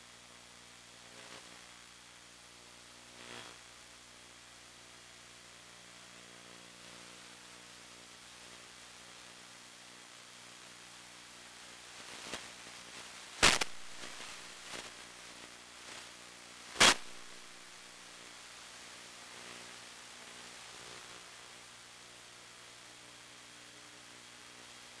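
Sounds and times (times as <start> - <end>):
low electrical hum: 0.0 - 25.0
static hiss: 0.0 - 25.0
loud sharp pops: 13.4 - 14.9, 16.7 - 17.3.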